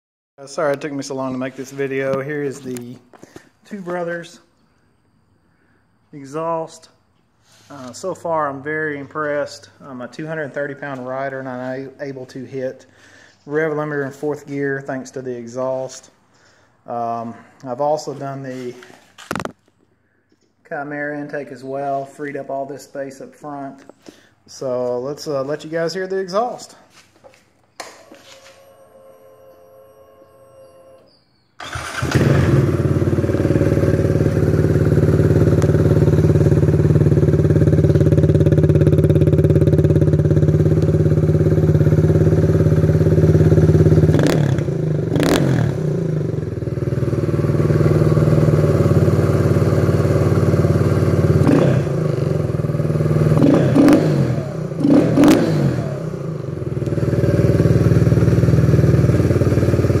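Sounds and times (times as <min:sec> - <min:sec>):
motorcycle engine idling: 0:31.6 - 1:00.0.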